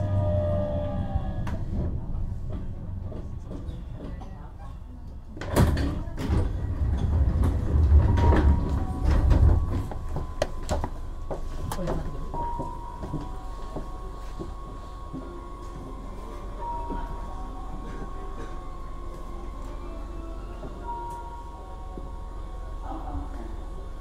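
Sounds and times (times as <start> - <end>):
clunks and rumble: 0.0 - 19.8
train doors sliding open: 5.4 - 14.9.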